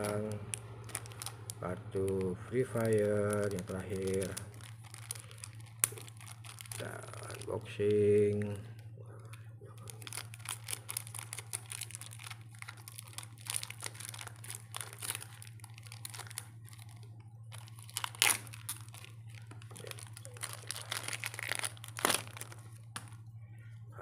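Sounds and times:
foil wrapper tearing: 0.0s - 8.8s, 9.8s - 23.2s
foil wrapper crinkling: 0.0s - 23.3s.

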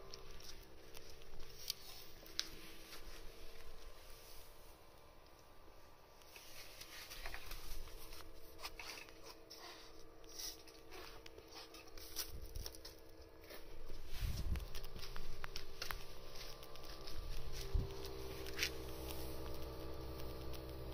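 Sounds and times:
low electrical hum: 0.0s - 20.9s
soft rustling and tapping: 10.6s - 20.8s.

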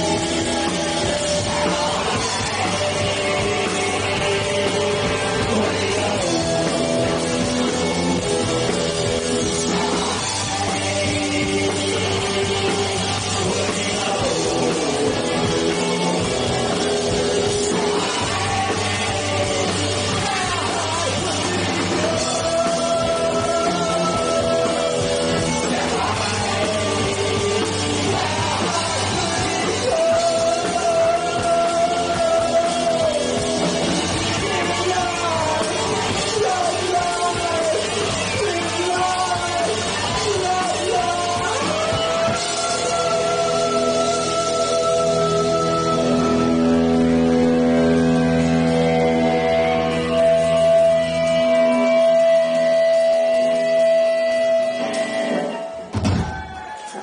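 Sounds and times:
man singing: 0.0s - 55.9s
live rock band playing: 0.0s - 57.0s.

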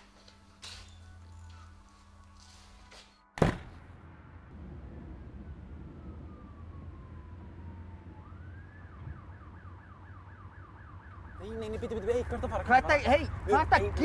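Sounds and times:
emergency siren wailing and yelping: 5.4s - 14.0s.

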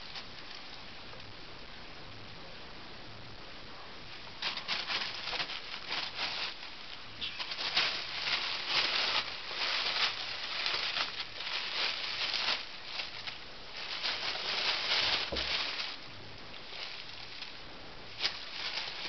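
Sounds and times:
plastic bag crinkling: 4.4s - 19.0s
dull thump: 15.2s - 15.7s.

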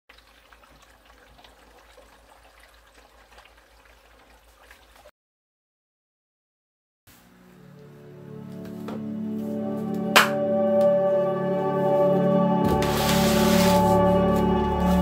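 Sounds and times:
small water drips: 0.1s - 5.1s
water trickling and gurgling: 0.1s - 5.1s.

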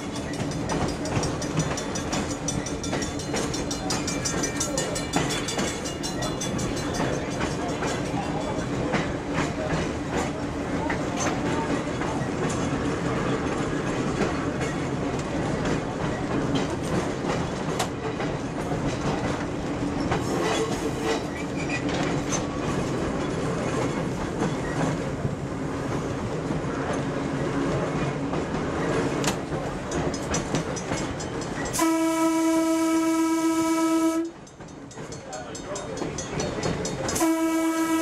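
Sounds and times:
trolley wheels clicking over rail joints: 0.0s - 32.0s, 34.2s - 38.0s
trolley rumble: 0.0s - 38.0s
trolley horn blast: 31.8s - 34.4s, 37.2s - 38.0s.

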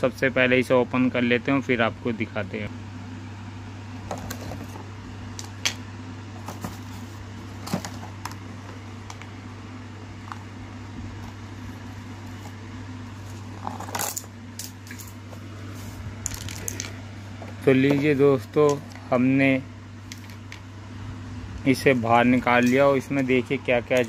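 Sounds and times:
steady low hum: 0.0s - 24.0s
cardboard box rustle: 6.4s - 8.8s.

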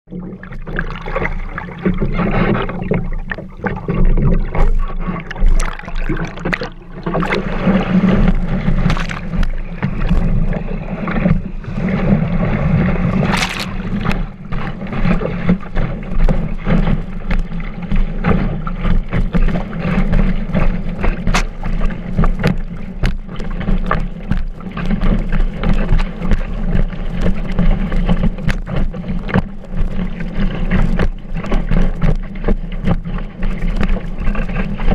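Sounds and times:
low rumble: 0.1s - 19.0s
water rushing against board: 0.1s - 34.9s.

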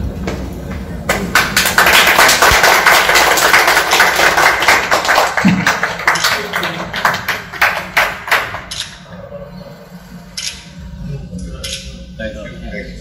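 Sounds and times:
people applauding: 1.0s - 8.8s.

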